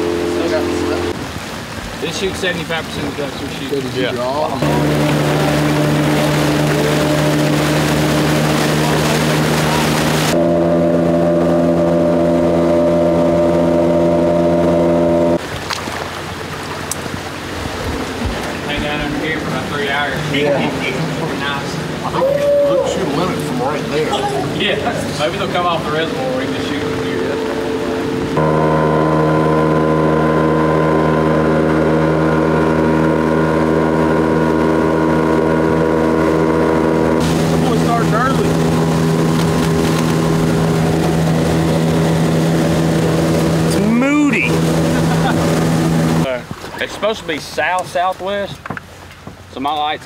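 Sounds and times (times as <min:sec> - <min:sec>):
rain hiss: 0:00.0 - 0:10.4, 0:37.2 - 0:46.4
boat motor running: 0:00.0 - 0:50.0.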